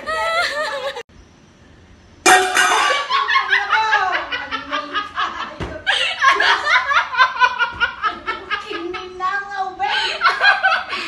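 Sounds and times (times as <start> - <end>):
women laughing hard: 0.0 - 1.1, 2.8 - 8.9, 9.9 - 11.0.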